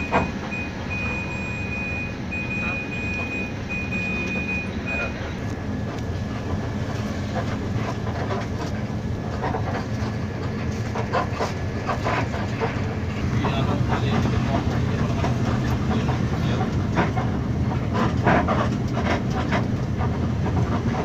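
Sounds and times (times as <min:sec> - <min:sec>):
high beep: 0:00.0 - 0:05.2
bus engine droning: 0:00.0 - 0:21.0.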